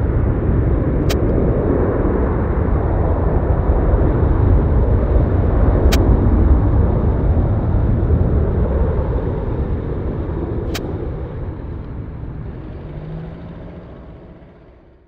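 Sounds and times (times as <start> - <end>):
jet engines rumbling: 0.0 - 15.0
sharp click: 5.9 - 6.1, 10.7 - 11.0.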